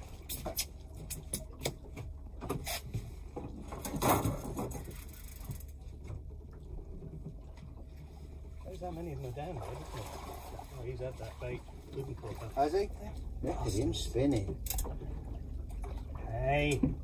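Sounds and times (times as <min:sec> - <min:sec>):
low steady hum: 0:00.0 - 0:17.0
gear knocks and clicks: 0:14.3 - 0:15.0.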